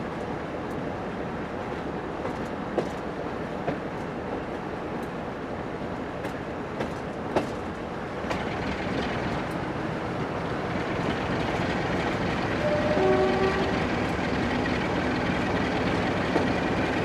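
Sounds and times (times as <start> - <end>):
diesel locomotive running: 0.0 - 17.0
train horn: 12.5 - 13.9.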